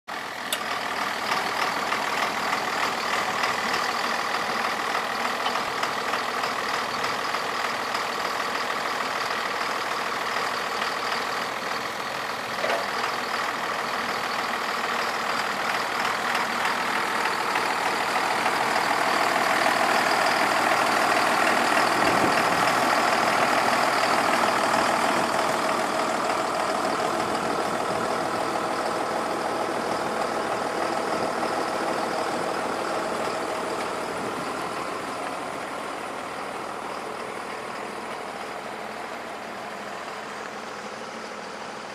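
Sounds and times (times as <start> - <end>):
tractor engine idling: 0.1 - 41.9.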